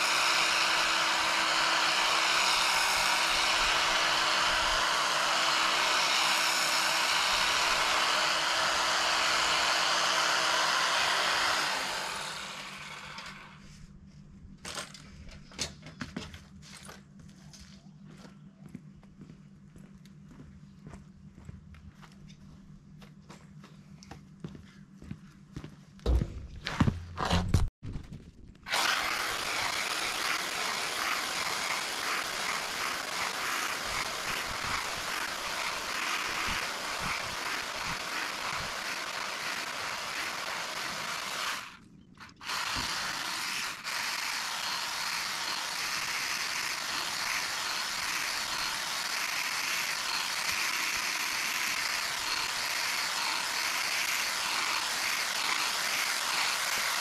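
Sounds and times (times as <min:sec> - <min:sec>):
hedge trimmer whirring: 0:00.0 - 0:13.6, 0:28.7 - 0:57.0.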